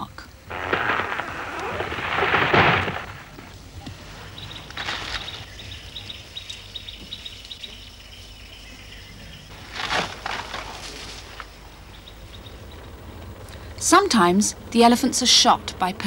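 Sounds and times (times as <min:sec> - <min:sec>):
branches breaking and rustling: 0:00.5 - 0:06.7, 0:09.5 - 0:11.7.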